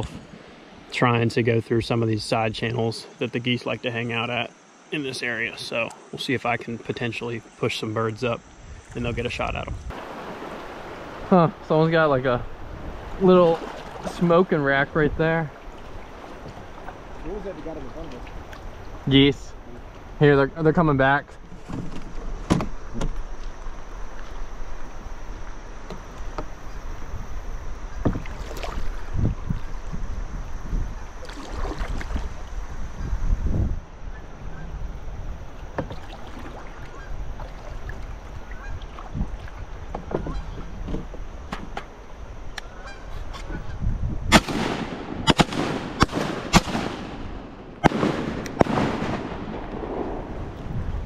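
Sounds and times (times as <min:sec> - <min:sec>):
water rushing and lapping: 0:08.7 - 0:20.2, 0:27.9 - 0:29.9, 0:31.1 - 0:32.7, 0:35.4 - 0:40.1
kayak knocks and splashes: 0:12.8 - 0:14.2, 0:15.5 - 0:18.7, 0:27.9 - 0:29.7, 0:31.2 - 0:32.4, 0:35.6 - 0:41.9
shotgun shots with echo: 0:44.3 - 0:50.1.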